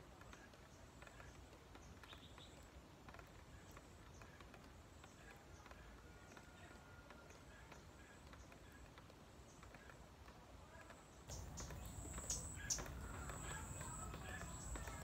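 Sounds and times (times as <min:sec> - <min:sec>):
bird chirps: 0:11.2 - 0:15.0.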